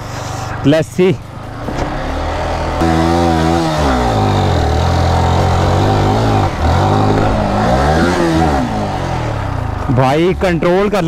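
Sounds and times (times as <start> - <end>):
motorcycle engine revving hard: 1.6 - 9.8.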